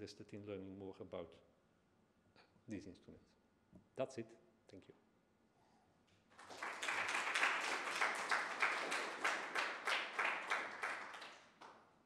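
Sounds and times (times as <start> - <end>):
audience applauding: 6.3 - 11.8.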